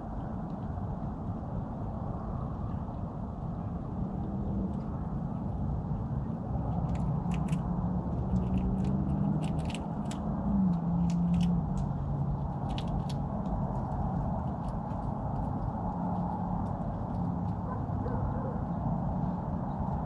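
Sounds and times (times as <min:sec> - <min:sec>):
steady low hum: 0:00.0 - 0:20.0
squirrel gnawing nut shell: 0:06.6 - 0:18.1.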